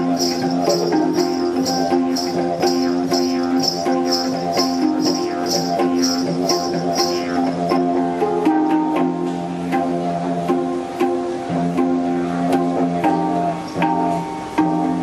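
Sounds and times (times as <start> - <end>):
high rattle beat: 0.0 - 8.0
didgeridoo drone: 0.0 - 15.0
handpan ringing notes: 0.0 - 15.0.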